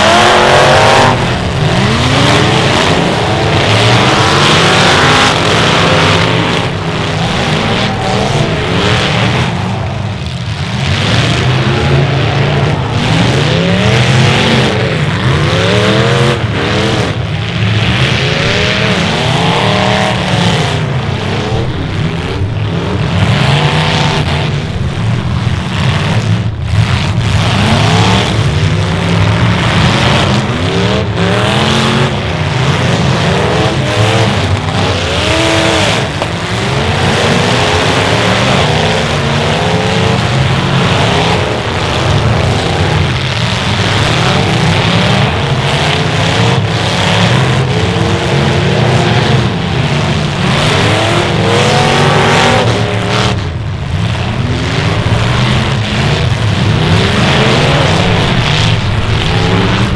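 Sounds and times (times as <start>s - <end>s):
car engines revving: 0.0s - 59.9s.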